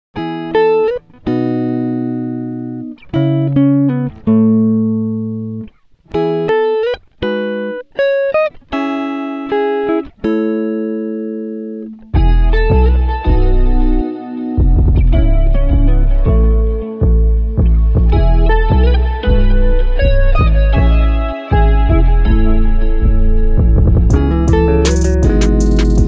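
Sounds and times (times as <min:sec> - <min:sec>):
plucked string music: 0:00.2 - 0:26.0
deep bass: 0:12.2 - 0:14.0, 0:14.6 - 0:26.0.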